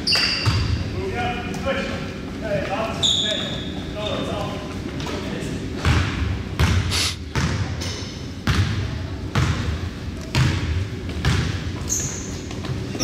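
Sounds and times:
basketball dribbling on wooden floor: 0:10.3 - 0:11.6.

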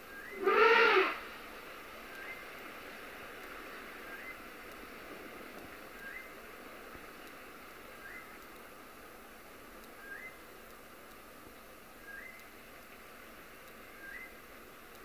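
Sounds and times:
steady outdoor hiss: 0:00.0 - 0:15.0
animal's rising whistled call: 0:00.3 - 0:01.2.

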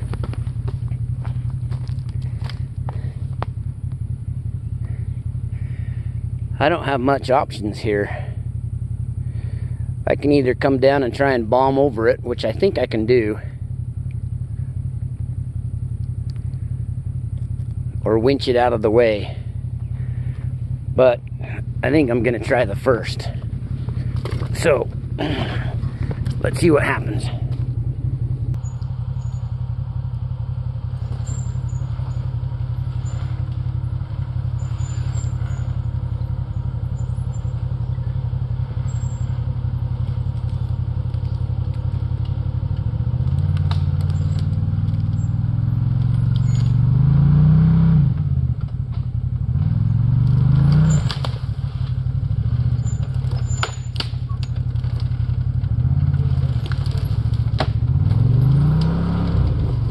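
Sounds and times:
branches cracking under tyres: 0:00.0 - 0:04.1, 0:23.2 - 0:47.8, 0:50.1 - 0:59.9
engine idling and revving: 0:00.0 - 0:59.9.

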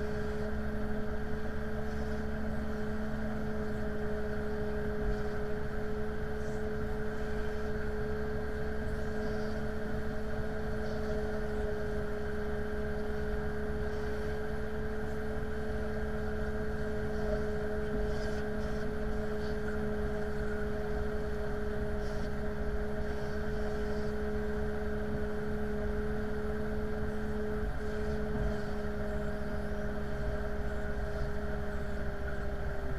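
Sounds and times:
tug engine droning: 0:00.0 - 0:32.9.

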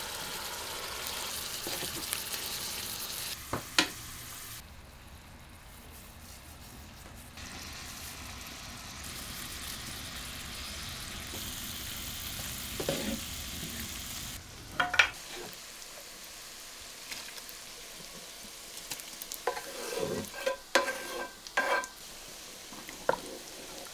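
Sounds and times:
vegetables sizzling in oil: 0:00.0 - 0:04.7, 0:07.4 - 0:23.9
wooden spatula scraping pan: 0:12.8 - 0:13.3, 0:14.9 - 0:15.6, 0:19.4 - 0:21.9, 0:23.0 - 0:23.9.

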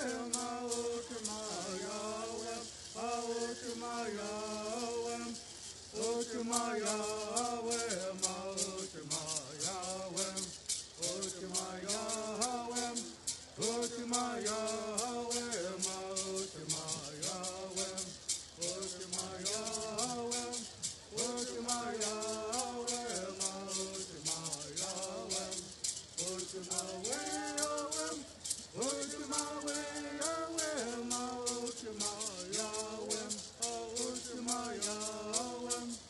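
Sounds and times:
gourd rattles shaking: 0:00.0 - 0:36.0
voices chanting: 0:00.0 - 0:36.0.

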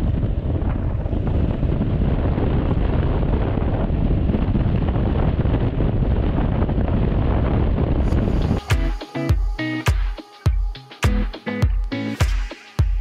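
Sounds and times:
wind rush on microphone: 0:00.0 - 0:09.6.

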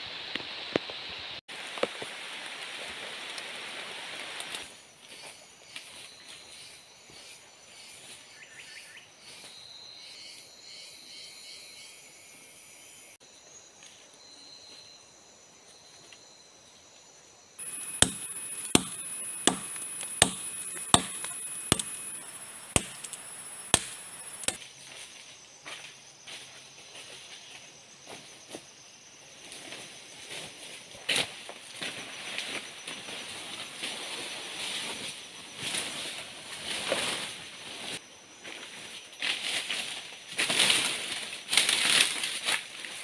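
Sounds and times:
jungle insects trilling: 0:01.7 - 0:43.0
blade chopping into wood: 0:17.6 - 0:24.6.

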